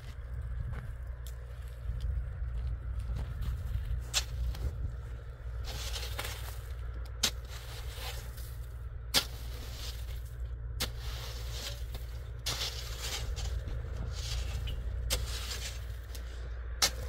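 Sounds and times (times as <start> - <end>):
low steady rumble: 0.0 - 17.0
shovel scraping crusted snow: 3.9 - 4.8, 5.5 - 17.0.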